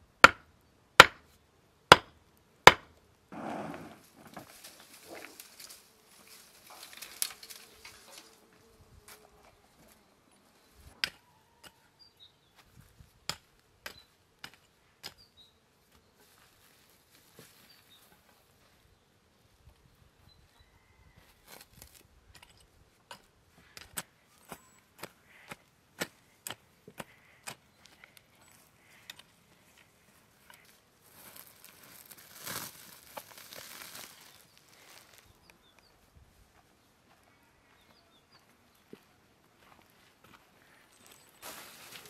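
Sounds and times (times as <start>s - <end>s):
soil pouring from a sack: 31.0s - 35.3s, 41.4s - 42.0s.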